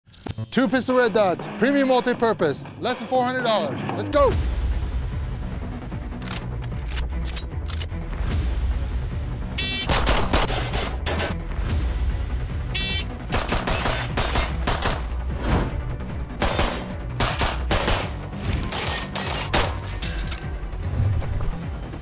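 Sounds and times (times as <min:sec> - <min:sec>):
pistol shots: 0:09.9 - 0:11.0, 0:13.3 - 0:15.0, 0:16.4 - 0:19.9.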